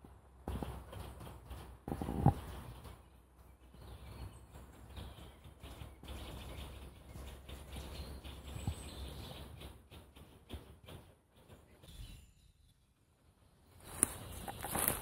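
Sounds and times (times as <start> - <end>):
faint bird chirps: 2.1 - 15.0
footstep on forest floor: 13.8 - 15.0.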